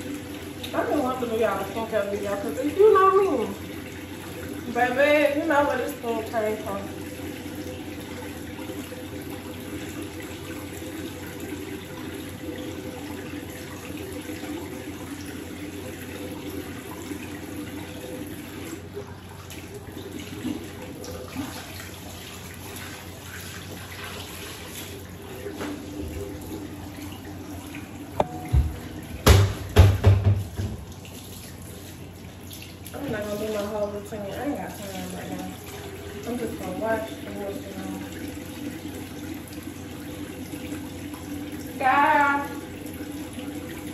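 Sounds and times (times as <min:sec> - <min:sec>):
tap running into sink: 0:25.5 - 0:26.2, 0:28.1 - 0:31.1
loud knocks: 0:28.2 - 0:30.9.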